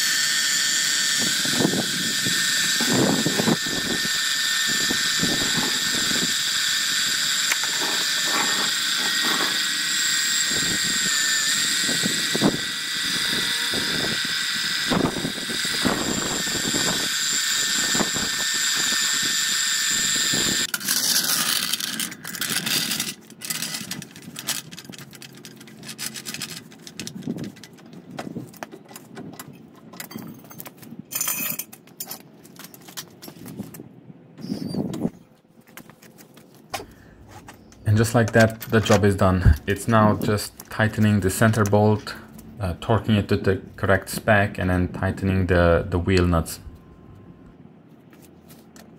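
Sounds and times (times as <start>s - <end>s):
electric pump whining: 0.0s - 29.5s.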